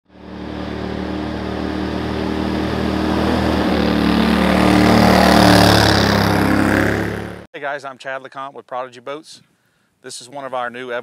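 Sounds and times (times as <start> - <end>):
boat motor running: 0.1 - 7.5.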